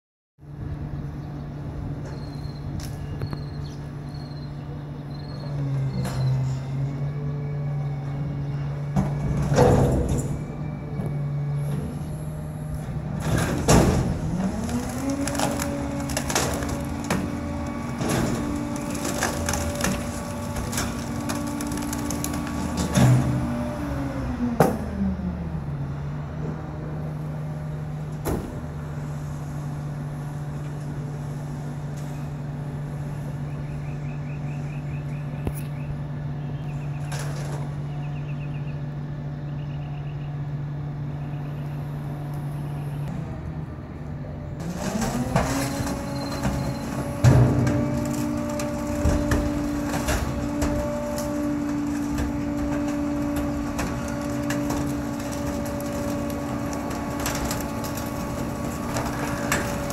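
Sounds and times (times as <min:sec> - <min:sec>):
hydraulics running: 0:01.4 - 0:59.9
garbage truck engine revving: 0:05.1 - 0:30.6, 0:42.0 - 0:59.9
wood cracking and snapping: 0:13.4 - 0:23.5, 0:44.6 - 0:59.9.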